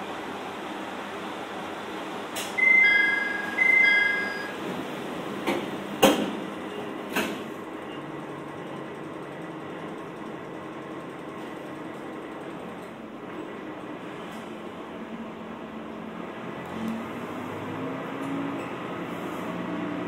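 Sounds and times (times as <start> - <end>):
diesel railcar idling: 0.0 - 17.8
two-note door chime: 2.6 - 4.6
sliding doors thudding shut: 4.6 - 7.6.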